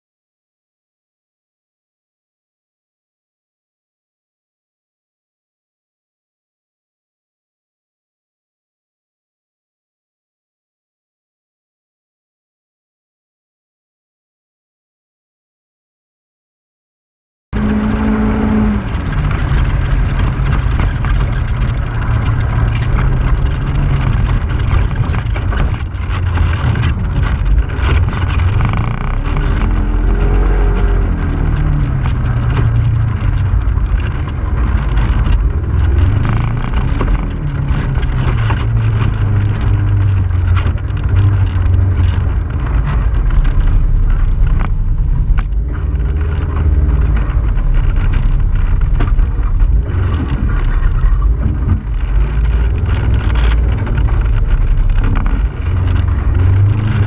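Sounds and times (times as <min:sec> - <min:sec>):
engine revving: 0:17.6 - 0:57.0.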